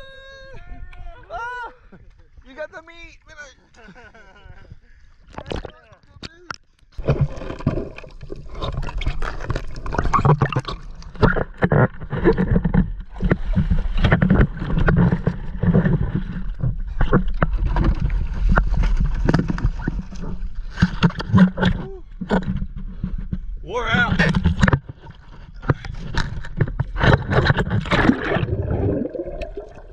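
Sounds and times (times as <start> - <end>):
water rushing and gurgling: 27.0 - 29.9.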